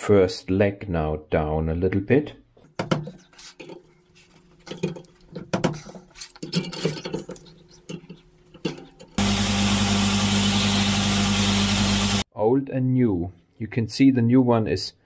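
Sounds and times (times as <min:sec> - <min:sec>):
power grinder grinding metal: 0:09.2 - 0:12.2.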